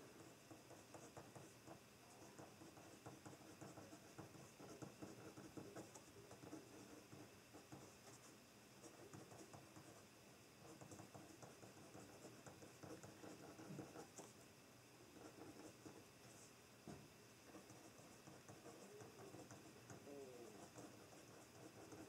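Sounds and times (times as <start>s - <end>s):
pen scratching on paper: 0.0s - 10.0s, 10.6s - 14.4s, 15.2s - 22.0s.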